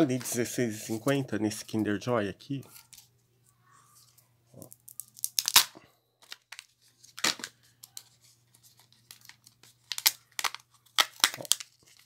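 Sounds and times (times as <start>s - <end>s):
sealing film crackling: 4.6s - 12.0s.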